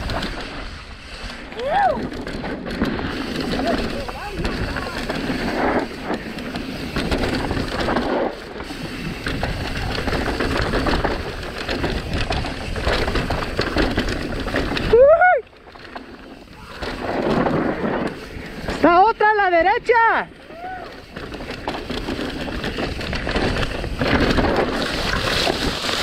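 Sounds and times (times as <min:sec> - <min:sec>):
wind rush on microphone: 0:00.0 - 0:15.5, 0:16.4 - 0:26.0
bike tyres on rough ground: 0:00.0 - 0:26.0.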